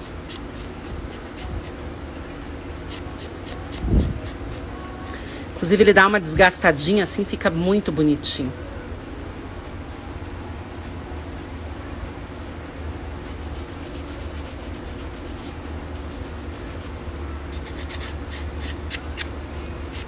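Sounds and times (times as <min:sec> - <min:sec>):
steady low hum: 0:00.0 - 0:20.0
sanding stick rubbing paper: 0:13.2 - 0:16.9.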